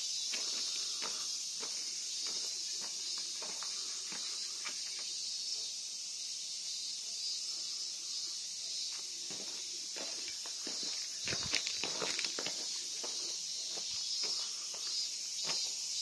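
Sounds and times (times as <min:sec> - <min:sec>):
insects droning: 0:00.0 - 0:16.0
footstep scuffs: 0:00.3 - 0:05.0, 0:08.9 - 0:15.8.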